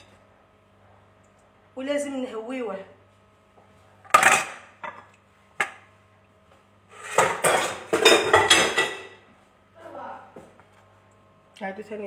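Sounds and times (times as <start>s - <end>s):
dishes clattering in plastic basin: 7.0s - 9.2s.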